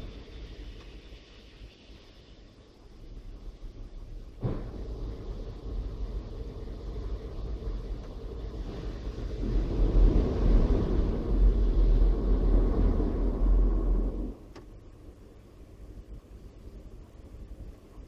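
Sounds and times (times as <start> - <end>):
car wash brushes rumbling: 2.8 - 14.7.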